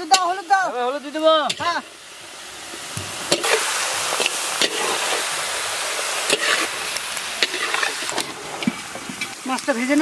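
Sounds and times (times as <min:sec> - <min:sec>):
chicken sizzling in a pan: 0:00.0 - 0:10.0
metal spatula scraping a pan: 0:06.2 - 0:06.8, 0:07.4 - 0:09.4.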